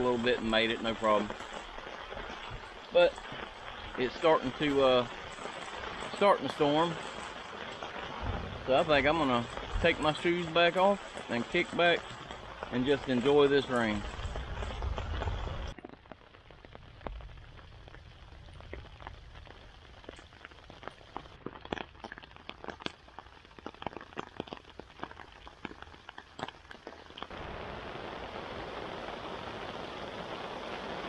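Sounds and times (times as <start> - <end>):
raindrops tapping on tarp: 0.0 - 31.0
steady hiss of rain: 0.0 - 31.0.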